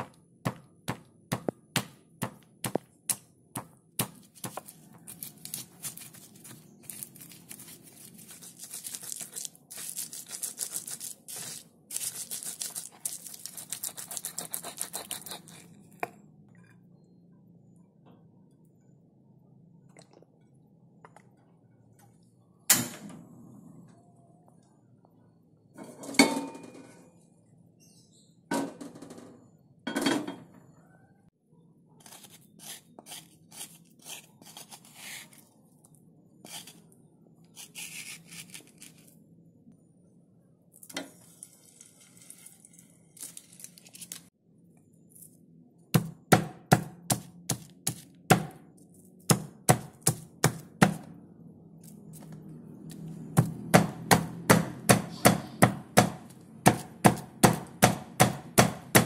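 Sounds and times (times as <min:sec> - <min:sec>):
hot oil crackling: 0:40.9 - 0:44.3
pestle pounding in stone mortar: 0:45.9 - 0:48.6, 0:49.3 - 0:51.1, 0:53.4 - 0:59.0.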